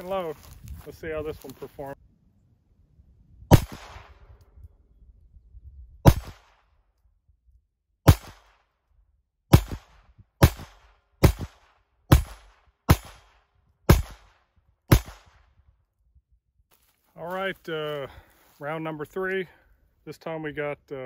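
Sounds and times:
pistol shots with echo: 0:03.5 - 0:04.2, 0:06.1 - 0:06.6, 0:08.0 - 0:08.6, 0:09.5 - 0:15.4.

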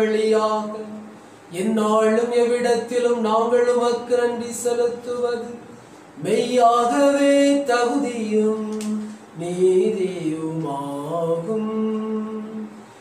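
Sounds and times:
man chanting: 0:00.0 - 0:12.8
breath: 0:05.8 - 0:06.2.

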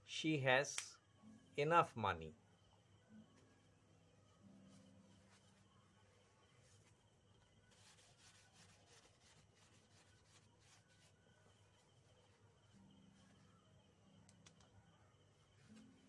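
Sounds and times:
whiteboard wiping: 0:07.7 - 0:11.2.

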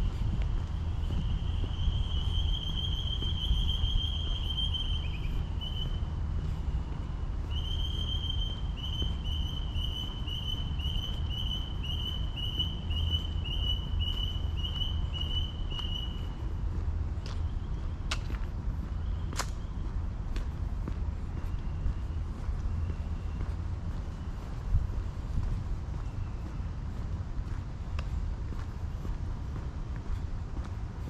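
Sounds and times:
high-pitched whistling animal call: 0:01.8 - 0:06.0.

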